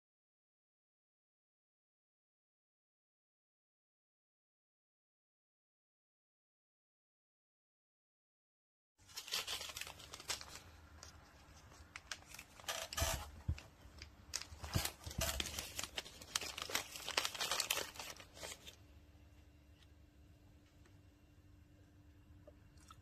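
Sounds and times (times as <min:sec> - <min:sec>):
plastic pouch crinkling and tearing: 0:09.0 - 0:18.8.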